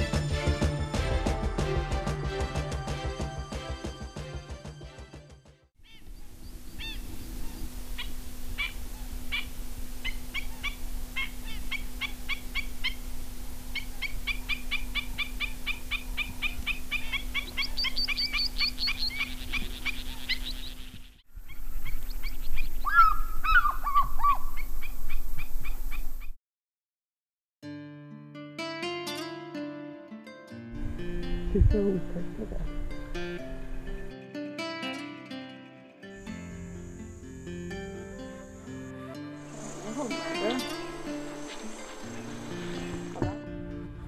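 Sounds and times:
birds chirping and trilling: 0:05.8 - 0:26.3, 0:36.3 - 0:43.3
high steady hiss: 0:06.0 - 0:23.5, 0:36.1 - 0:43.3.

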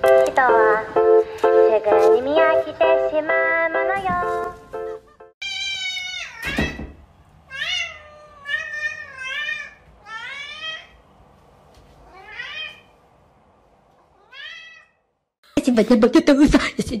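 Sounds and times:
cat meowing: 0:05.4 - 0:06.8, 0:07.5 - 0:11.0, 0:12.0 - 0:12.9, 0:14.0 - 0:15.1.

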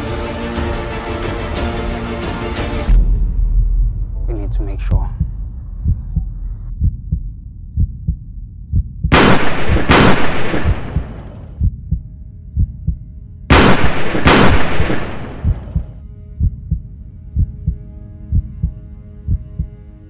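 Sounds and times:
heartbeat thump: 0:04.9 - 0:09.2, 0:10.6 - 0:13.0, 0:15.3 - 0:19.8
loud bangs with long tail: 0:09.1 - 0:11.4, 0:13.5 - 0:15.9.

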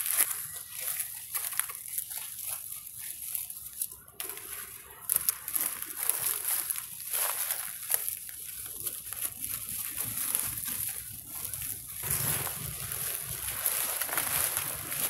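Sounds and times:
dry leaves crackling underfoot: 0:00.0 - 0:15.0.

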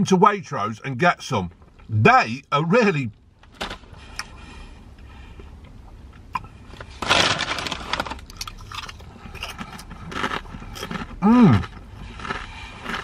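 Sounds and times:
crisp being chewed: 0:05.6 - 0:13.0
foil crisp packet crinkling: 0:06.8 - 0:10.4.

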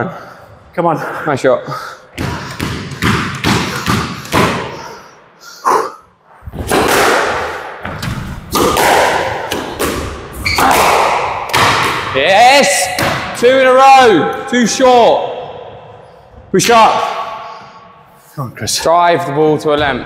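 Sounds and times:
squash ball hitting rackets and walls: 0:02.1 - 0:05.0, 0:06.4 - 0:14.4.

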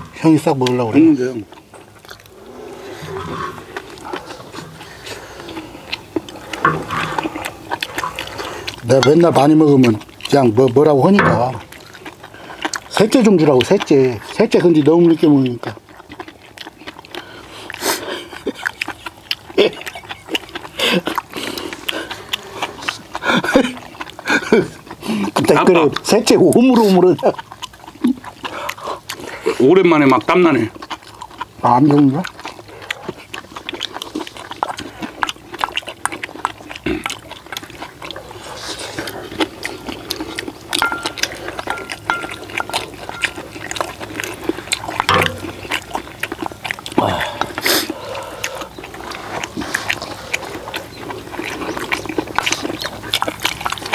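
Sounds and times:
wet chewing and slurping: 0:00.0 - 0:53.9
metal spoons clicking on bowls: 0:40.8 - 0:43.4.

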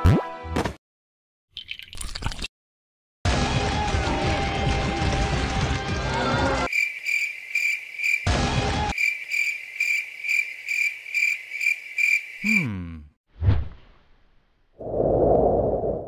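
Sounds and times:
cricket chirping: 0:06.7 - 0:08.3, 0:08.9 - 0:12.7.

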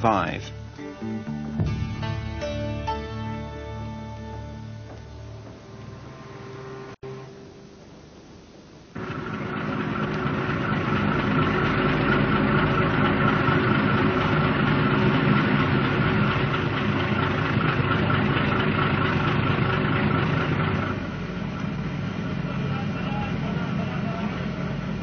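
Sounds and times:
engine running with faint whine: 0:08.9 - 0:25.0.

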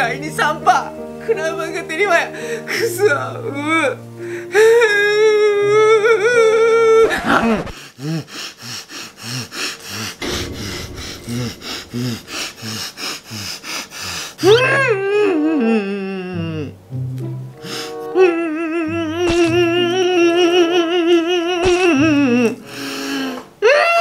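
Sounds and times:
man sobbing and wailing: 0:04.6 - 0:08.6.

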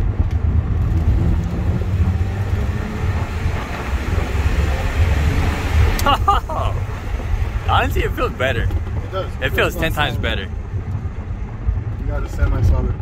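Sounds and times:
car engine rumble: 0:00.0 - 0:13.0
road noise: 0:00.0 - 0:13.0.

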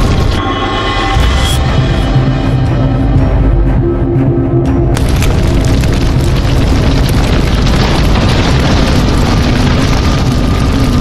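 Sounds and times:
background music: 0:00.0 - 0:07.6
rushing noise with deep rumble: 0:04.5 - 0:11.0.

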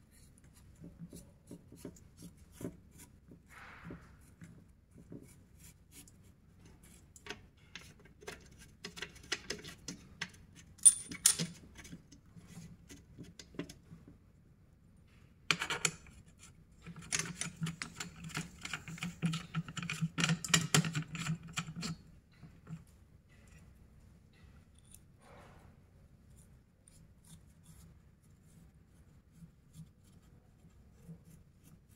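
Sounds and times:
rustling and scraping: 0:00.0 - 0:14.2, 0:15.8 - 0:31.9
small parts clicking and tapping: 0:06.0 - 0:13.8, 0:15.4 - 0:25.1.

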